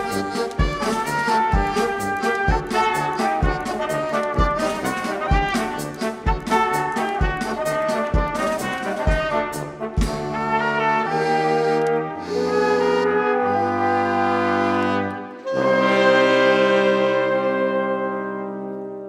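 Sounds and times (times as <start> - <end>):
drum kit beat: 0.0 - 10.7
brass and wind ensemble: 0.0 - 19.0.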